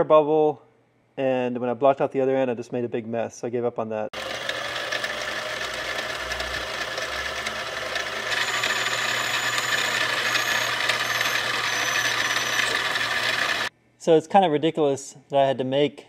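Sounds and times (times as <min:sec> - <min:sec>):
lathe cutting brass: 0:04.2 - 0:13.7
motor hum: 0:04.2 - 0:13.7
faint high whistling tones: 0:08.4 - 0:13.6.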